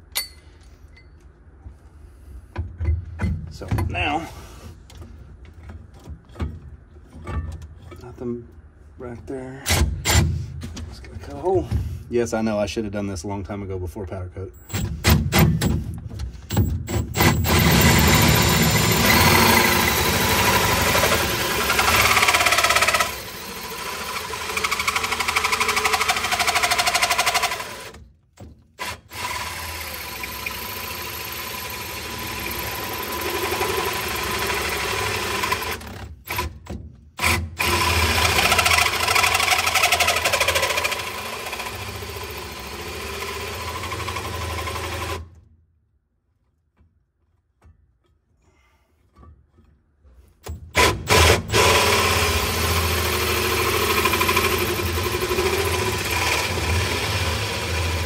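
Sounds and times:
power drill cutting through metal panel: 16.9 - 28.0, 28.8 - 36.6, 37.2 - 45.3, 50.7 - 58.0.

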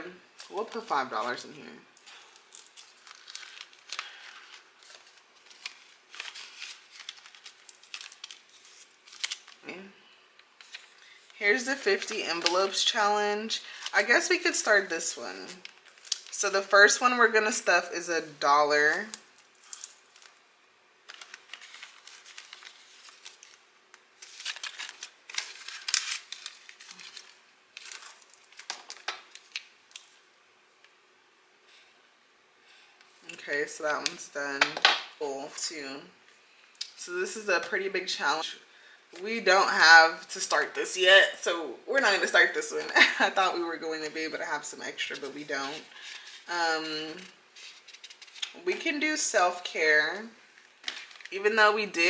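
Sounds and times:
plastic pocket and banknotes rustling: 2.2 - 9.6, 10.6 - 16.5, 21.0 - 30.2, 44.9 - 48.5, 50.5 - 51.4.

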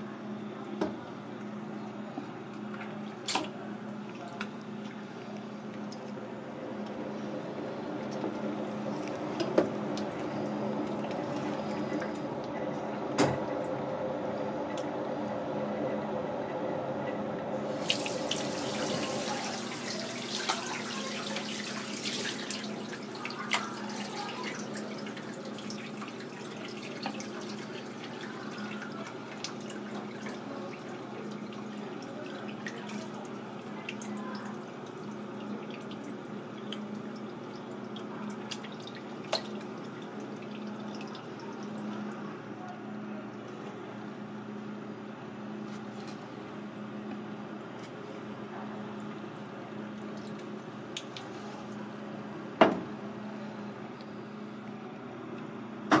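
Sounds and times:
steady low hum: 0.0 - 51.0
water running in a sink: 2.8 - 12.2, 17.6 - 42.5, 48.8 - 52.0.

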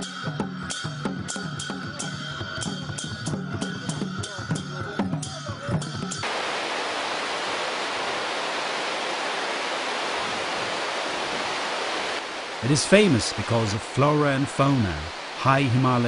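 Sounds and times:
music with drum beats and voices: 0.0 - 6.2
waterfall rushing: 6.2 - 16.0.

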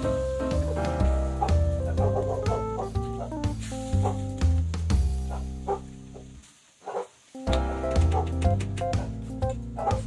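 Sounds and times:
music with heavy bass beat: 0.0 - 5.7.

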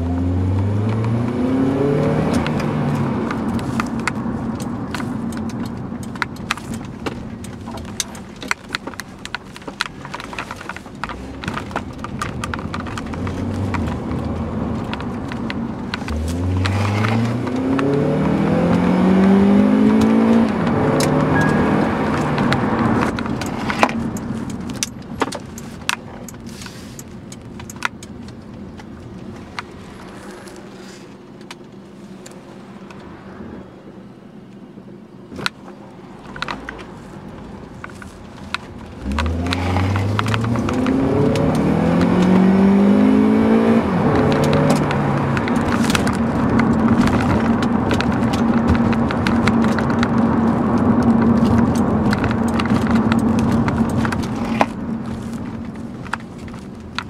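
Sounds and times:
car engine accelerating: 0.0 - 57.0
road noise: 0.0 - 57.0
small clicks and rattles: 2.3 - 17.9, 44.1 - 57.0.

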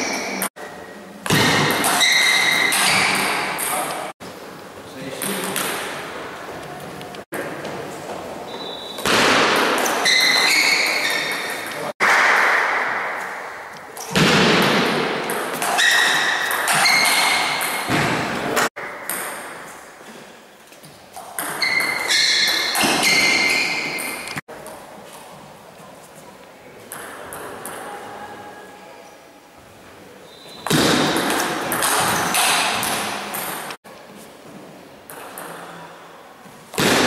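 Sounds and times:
shoe squeaks: 1.9 - 3.5, 8.4 - 9.1, 10.0 - 11.6, 15.8 - 17.6, 21.6 - 24.4, 30.2 - 30.7.

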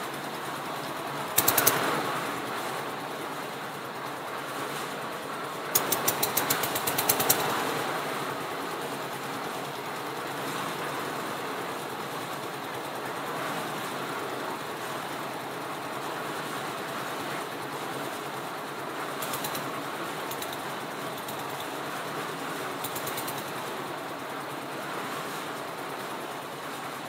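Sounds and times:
diesel engine running: 0.0 - 27.0
sharp rapid knocks: 1.3 - 2.2, 5.7 - 7.7, 19.2 - 21.8, 22.8 - 23.7.

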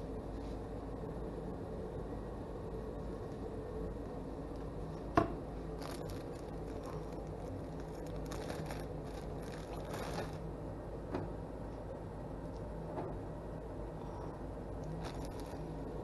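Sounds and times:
steady background hum: 0.0 - 16.0
plastic bag crinkling: 5.7 - 10.4, 14.9 - 15.9.

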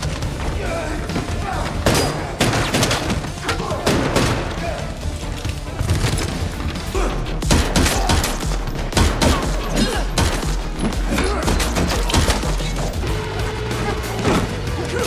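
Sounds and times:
rapid pistol shots: 7.4 - 10.7.

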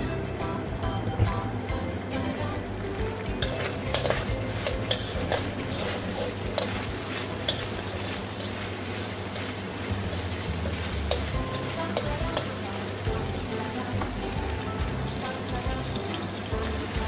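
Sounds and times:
food sizzling in frying pan: 3.2 - 17.0
spatula clicking against pan: 3.9 - 5.5, 11.0 - 12.5.

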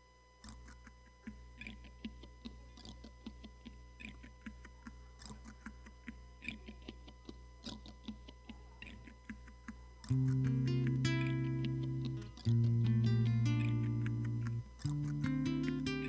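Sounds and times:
faint electrical hum: 0.0 - 16.0
acoustic guitar chord ringing: 10.2 - 14.5, 15.2 - 16.0.

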